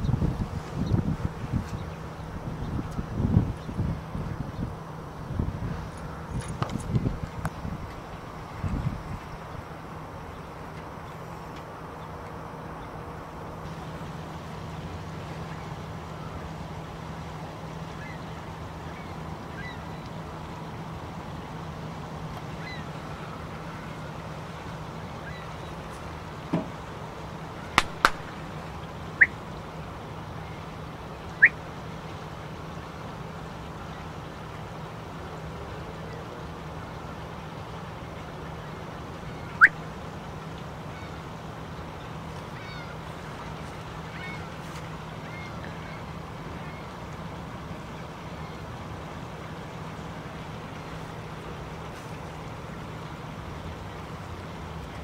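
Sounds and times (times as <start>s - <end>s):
geese honking: 27.6s - 29.5s
geese calling: 27.6s - 29.6s, 30.4s - 31.6s, 39.3s - 39.8s, 42.5s - 46.9s
sharp clicks: 27.8s - 28.4s.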